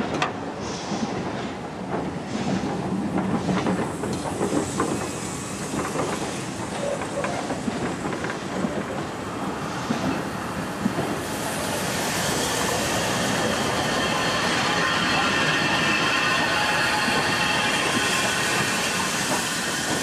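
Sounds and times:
train wheels clattering on rails: 0.0s - 20.0s
steam hiss: 2.2s - 8.6s, 9.2s - 20.0s.

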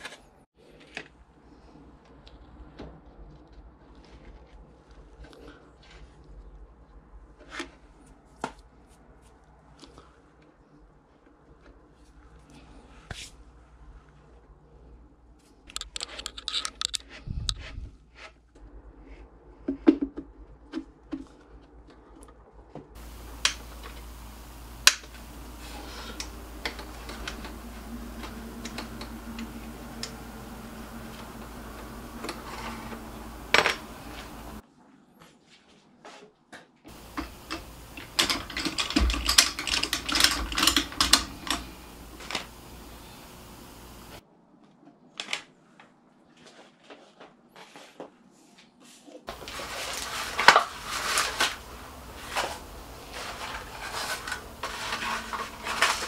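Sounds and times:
metal parts clicking and rattling: 15.7s - 17.2s, 23.0s - 34.6s, 36.9s - 44.2s, 49.3s - 56.0s
steady hiss: 23.0s - 34.6s, 36.9s - 44.2s, 49.3s - 56.0s.

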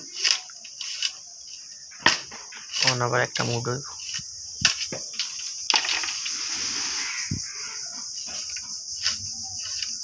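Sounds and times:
blade rasping bamboo: 0.0s - 1.7s, 2.7s - 4.9s, 8.1s - 10.0s.

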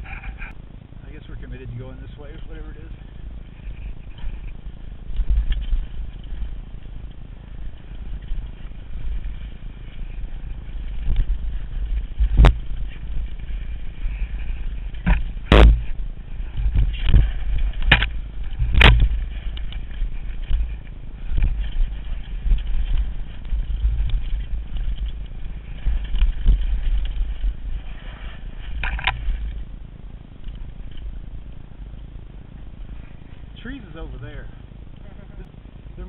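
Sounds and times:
bike tyre noise: 0.0s - 36.0s
wind rumble on microphone: 0.0s - 36.0s
bike clattering over rocks: 3.6s - 29.7s.

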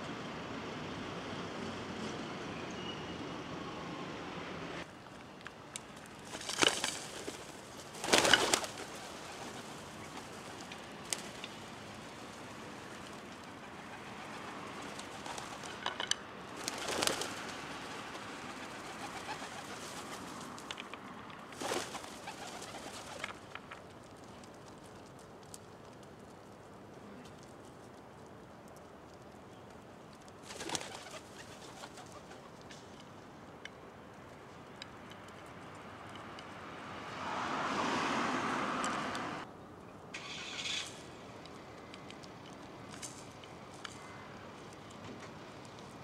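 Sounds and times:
outdoor background noise: 0.0s - 46.0s
pigeons and crows calling: 6.2s - 20.6s, 21.6s - 23.6s, 30.4s - 32.8s, 43.7s - 44.8s.

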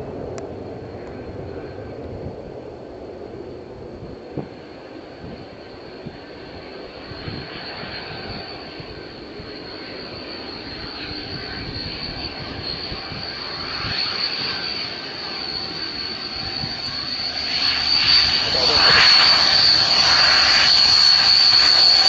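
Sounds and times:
propeller noise: 0.0s - 22.0s
turboprop engine whine: 0.0s - 22.0s.

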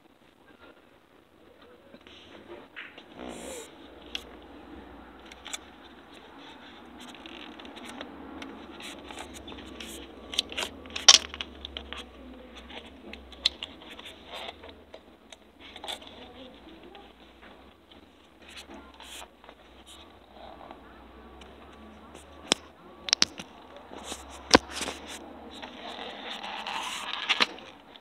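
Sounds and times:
small objects clicking and tapping: 9.1s - 12.1s, 22.2s - 25.1s.

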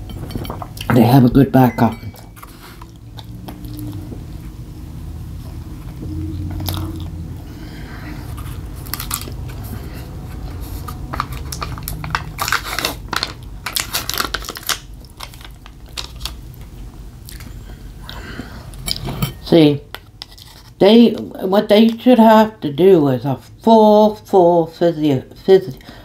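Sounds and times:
steady low hum: 0.0s - 20.8s
person chewing crunchy food: 2.4s - 4.6s, 5.4s - 17.6s.

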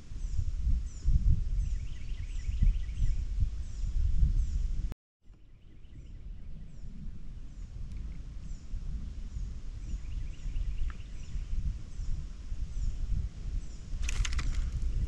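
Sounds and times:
wind rumbling on microphone: 0.0s - 15.0s
bird chirping: 9.3s - 12.2s.

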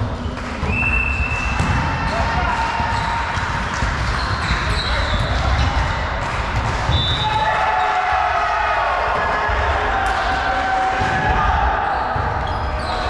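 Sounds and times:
volleyball being struck: 0.6s - 2.6s.

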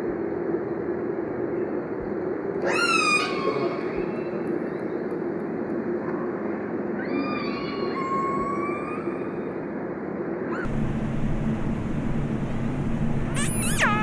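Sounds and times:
steady noisy bed: 0.0s - 14.0s
low hum: 9.2s - 14.0s.

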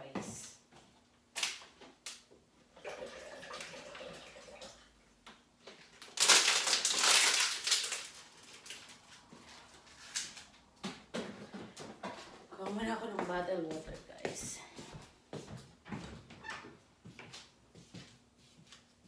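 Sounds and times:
wrapper crinkling and crumpling: 5.7s - 10.6s.

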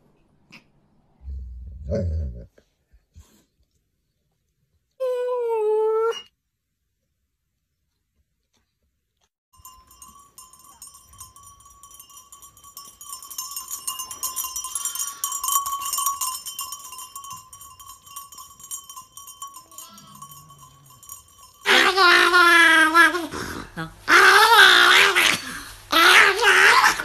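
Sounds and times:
livestock bells jingling: 9.6s - 23.1s.

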